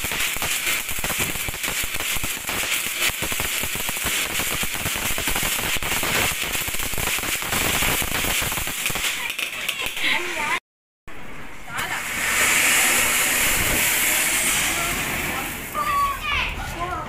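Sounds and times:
firework hissing and crackling: 0.0s - 10.6s, 11.2s - 16.6s.

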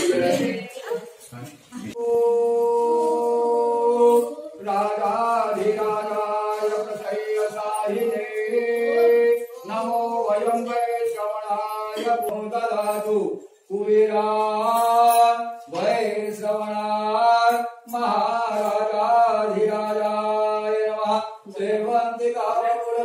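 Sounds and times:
person chanting a hymn: 2.0s - 10.8s.

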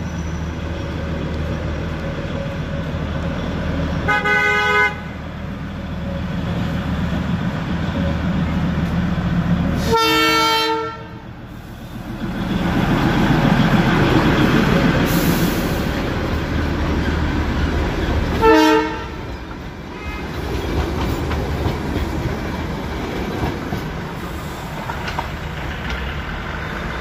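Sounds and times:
diesel locomotive engine running: 0.0s - 27.0s
train rolling noise: 0.0s - 27.0s
train horn: 4.1s - 5.2s, 9.8s - 11.2s, 18.4s - 19.3s, 19.9s - 20.4s.

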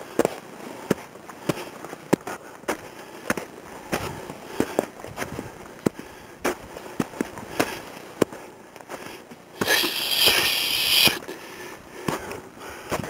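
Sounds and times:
loud hissing rustle: 9.6s - 11.4s.

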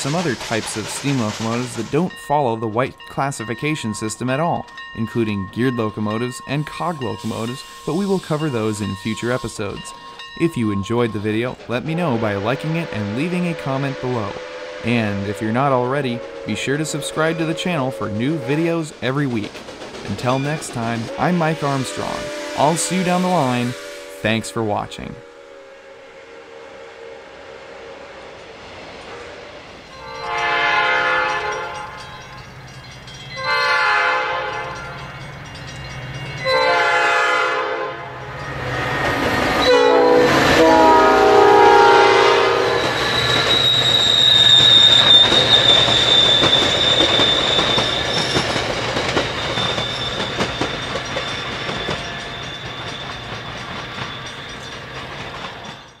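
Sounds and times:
train rushing past: 0.0s - 56.0s
train horn blasts: 12.0s - 18.8s, 20.8s - 32.0s, 33.4s - 34.9s, 36.4s - 43.8s
high-pitched wheel squeal: 38.4s - 56.0s.

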